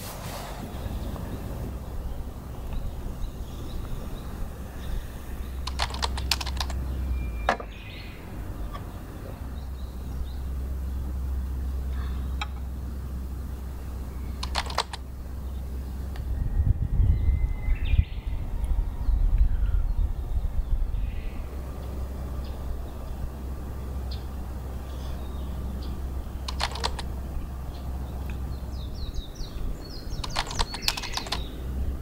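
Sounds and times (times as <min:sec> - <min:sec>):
low steady rumble: 0:00.0 - 0:32.0
small hard objects clicking: 0:05.6 - 0:06.8, 0:14.4 - 0:15.0, 0:26.4 - 0:27.1, 0:30.2 - 0:31.5.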